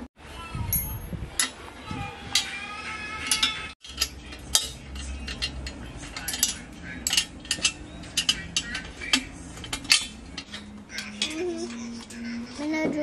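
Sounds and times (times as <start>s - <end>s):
spanner clinking on metal: 3.2s - 11.8s.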